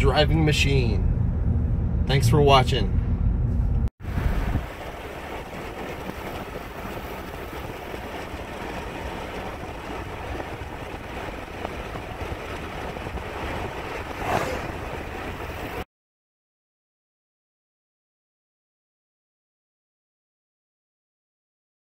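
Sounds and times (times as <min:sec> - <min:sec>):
car wind and road noise: 0:00.0 - 0:15.9.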